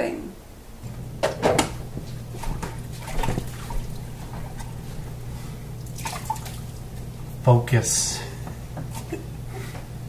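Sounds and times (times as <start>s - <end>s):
steady low hum: 0.0s - 10.0s
running water: 1.9s - 7.4s.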